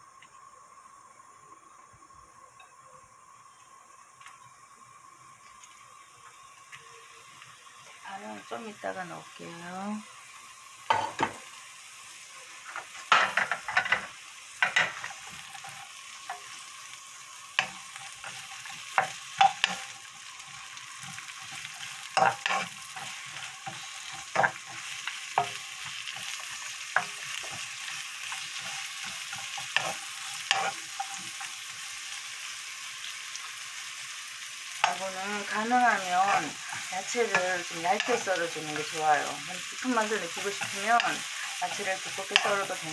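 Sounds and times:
vegetables sizzling in oil: 0:00.0 - 0:42.9
spatula clacking and scraping pan: 0:12.7 - 0:16.6, 0:17.6 - 0:31.9, 0:40.4 - 0:42.8.

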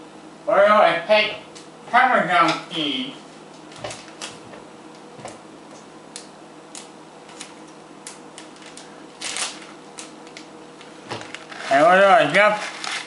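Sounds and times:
plastic bag crinkling: 0:08.4 - 0:13.0.

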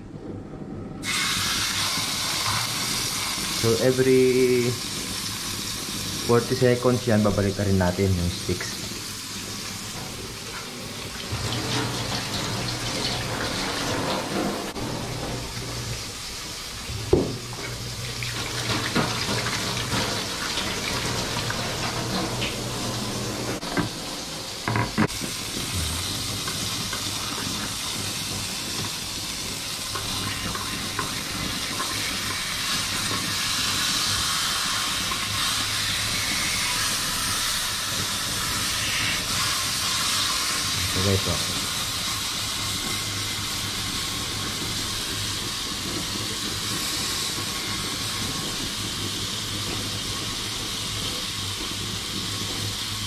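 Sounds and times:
steak sizzling in frying pan: 0:01.0 - 0:53.0
tap water running into sink: 0:11.2 - 0:15.8, 0:16.9 - 0:23.9.

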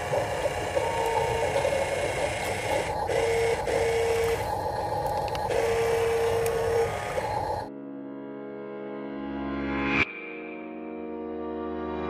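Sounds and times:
electric motor whining: 0:00.0 - 0:07.7.

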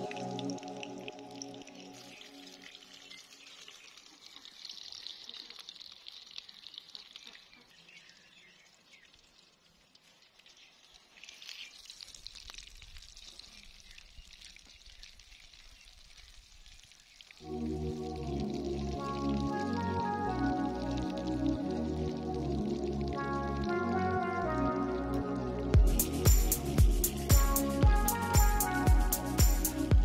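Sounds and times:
eggplant sizzling in oil: 0:01.7 - 0:17.4.

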